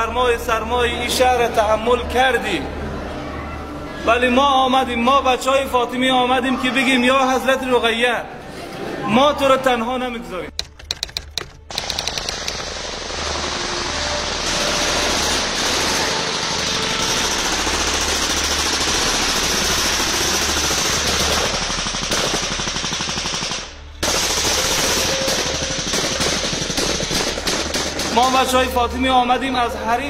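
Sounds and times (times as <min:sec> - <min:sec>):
machine-gun fire: 0:14.7 - 0:28.6.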